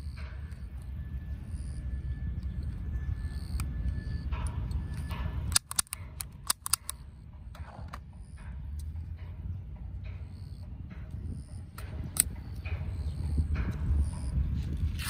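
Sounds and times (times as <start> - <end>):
wind rumbling on microphone: 0.0 - 15.0
plastic pistol parts clicking: 4.6 - 8.1, 11.8 - 12.4.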